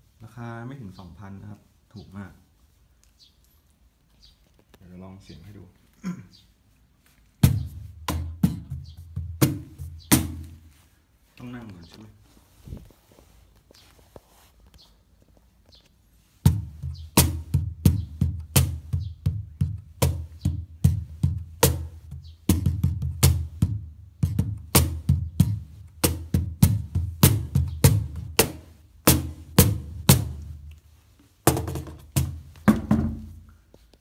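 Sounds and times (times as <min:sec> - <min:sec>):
cajon played with hands: 0:07.4 - 0:10.7, 0:16.5 - 0:30.6, 0:31.5 - 0:33.5.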